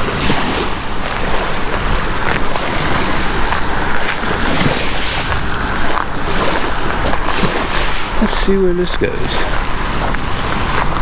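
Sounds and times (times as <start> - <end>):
small waves lapping on shore: 0.0 - 11.0
water splashes: 0.0 - 11.0
wind buffeting microphone: 0.0 - 11.0.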